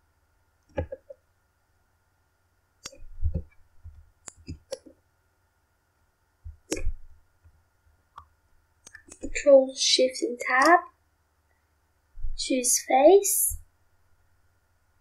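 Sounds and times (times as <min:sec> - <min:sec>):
mouse and keyboard clicks: 0:04.2 - 0:05.0, 0:06.6 - 0:07.0.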